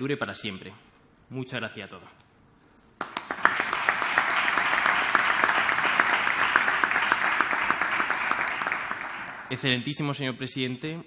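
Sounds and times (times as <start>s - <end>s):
audience applauding: 3.0s - 9.7s.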